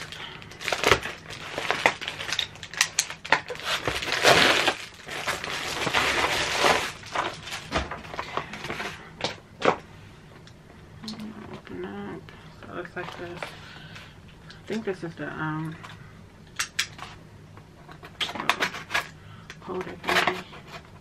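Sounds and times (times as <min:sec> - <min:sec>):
packaging crinkling and tearing: 0:00.0 - 0:09.8.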